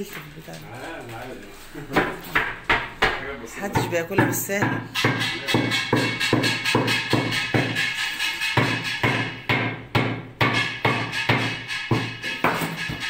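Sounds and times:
music with fast percussive beat: 0:03.6 - 0:13.0.

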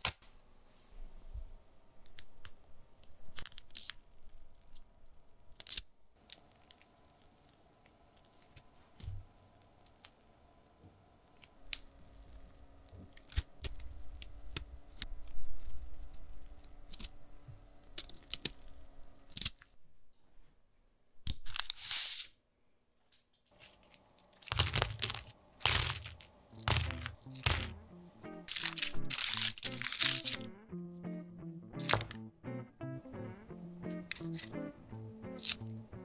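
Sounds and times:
piping bag squishing: 0:06.2 - 0:10.3, 0:23.6 - 0:27.8, 0:28.4 - 0:30.5
crisp crackling crunches: 0:23.5 - 0:27.8, 0:28.4 - 0:30.5
plastic bag rustling: 0:23.5 - 0:27.8, 0:28.4 - 0:30.5.

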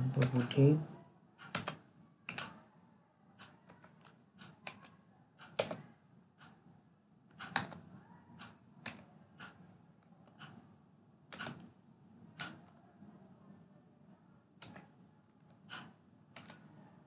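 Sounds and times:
keyboard keystrokes: 0:01.4 - 0:02.6, 0:03.4 - 0:05.9, 0:07.3 - 0:07.8, 0:11.3 - 0:11.7, 0:14.6 - 0:16.7.

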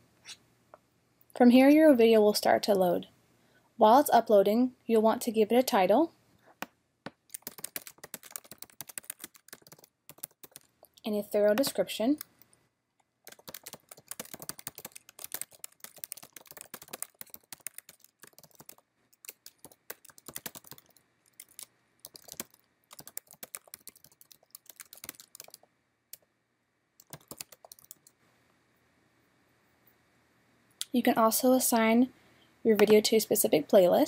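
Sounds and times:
typing on computer keyboard: 0:07.3 - 0:10.7, 0:13.3 - 0:25.7, 0:27.0 - 0:28.2.

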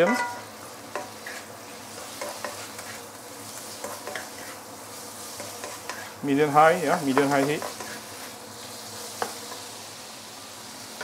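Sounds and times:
spatula scraping and knocking on pan: 0:00.0 - 0:03.1, 0:03.7 - 0:04.6, 0:05.3 - 0:06.2, 0:07.0 - 0:08.1, 0:09.1 - 0:09.7
meat sizzling in a wok: 0:00.0 - 0:11.0.

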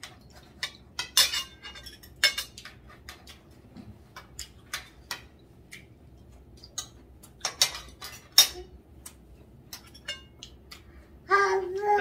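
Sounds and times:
cutlery clinking on plates: 0:00.0 - 0:05.4, 0:06.6 - 0:08.7, 0:09.7 - 0:10.6.

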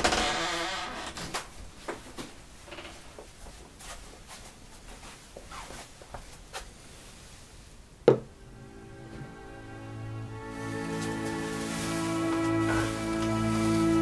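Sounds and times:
faint rustling and handling: 0:01.3 - 0:07.8, 0:10.5 - 0:14.0
ceramic mug knocking on wood: 0:08.1 - 0:08.3.

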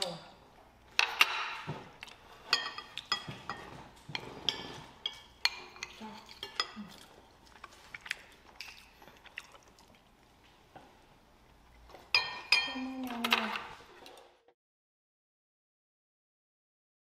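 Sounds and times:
spoon and chopsticks clinking on bowls: 0:02.4 - 0:07.2, 0:11.9 - 0:14.3.

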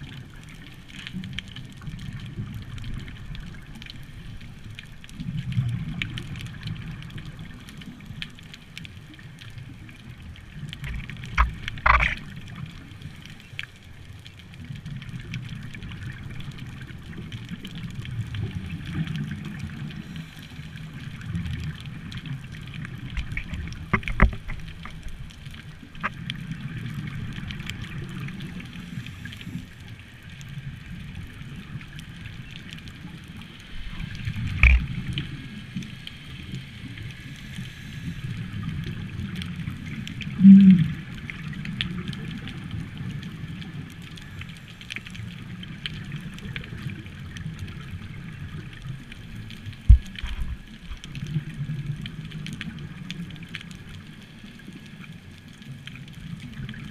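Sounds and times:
regulator bubbles rumbling underwater: 0:00.0 - 0:56.9.

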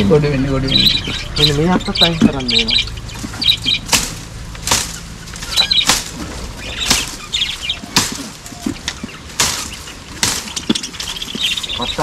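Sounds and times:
birds chirping: 0:00.0 - 0:12.0
branches snapping and rustling: 0:00.7 - 0:12.0.

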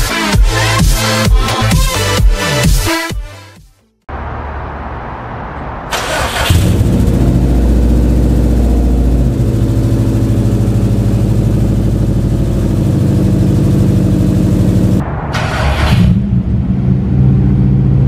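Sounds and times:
car engine idling: 0:04.1 - 0:15.1
engine starter cranking: 0:05.9 - 0:07.0.

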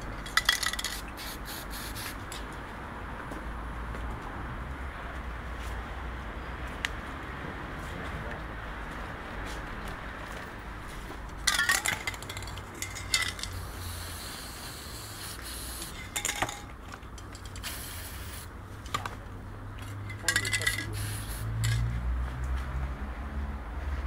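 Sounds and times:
metal cans clinking and rattling: 0:00.2 - 0:01.0, 0:11.4 - 0:13.6, 0:16.0 - 0:17.7, 0:20.1 - 0:21.0
spray can hissing: 0:00.6 - 0:02.2, 0:13.1 - 0:16.6, 0:17.6 - 0:18.5, 0:20.8 - 0:21.6.

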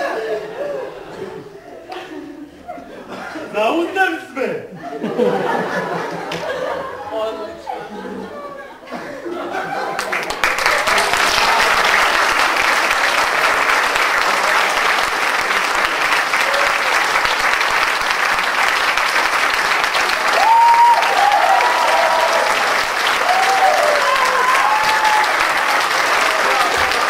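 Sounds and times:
audience applauding: 0:09.6 - 0:27.0
crowd calling out: 0:20.0 - 0:27.0.

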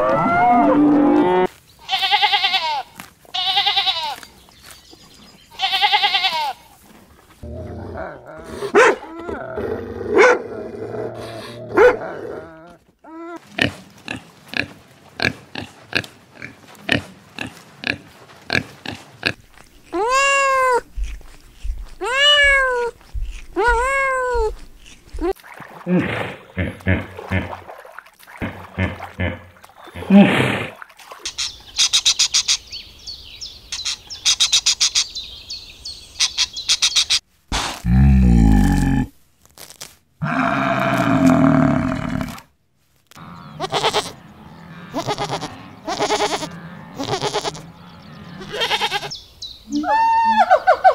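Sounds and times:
sheep bleating: 0:01.9 - 0:04.2, 0:05.6 - 0:06.6, 0:43.4 - 0:47.6, 0:48.4 - 0:49.1
dog barking: 0:08.7 - 0:09.1, 0:10.2 - 0:10.4, 0:11.8 - 0:12.0
pigs grunting: 0:13.4 - 0:30.9
lorikeets chirping: 0:31.3 - 0:37.2, 0:47.8 - 0:49.8.

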